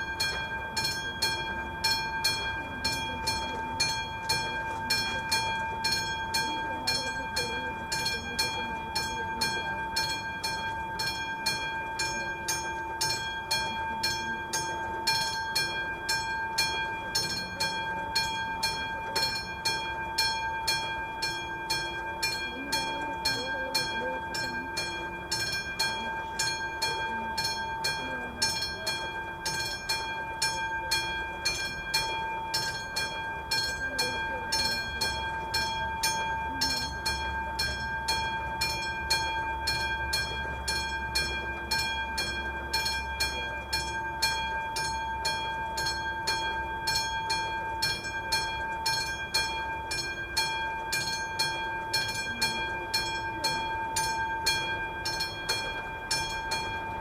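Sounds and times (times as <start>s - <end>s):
level crossing warning bell: 0.0s - 57.0s.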